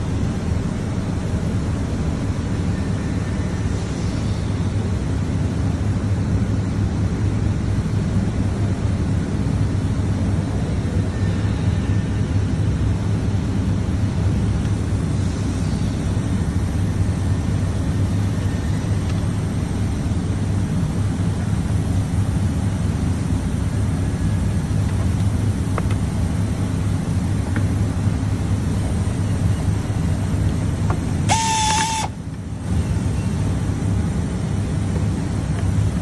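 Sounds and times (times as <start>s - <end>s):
workshop mechanical hum: 0.0s - 36.0s.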